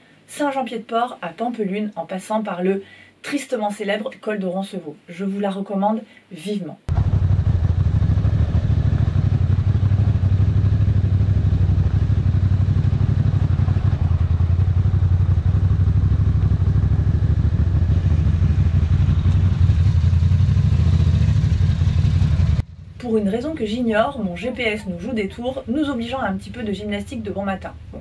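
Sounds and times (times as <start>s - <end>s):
motorcycle engine running: 6.9s - 23.0s.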